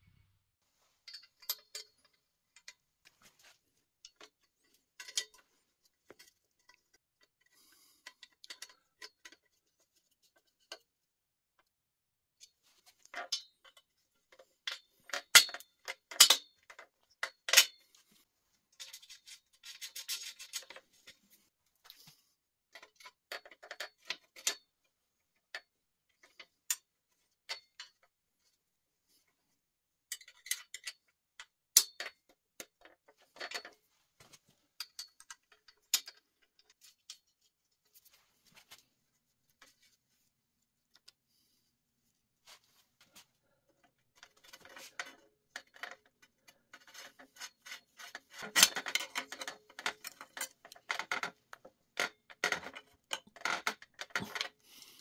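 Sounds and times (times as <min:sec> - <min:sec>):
tools clinking on metal: 0:01.0 - 0:02.8.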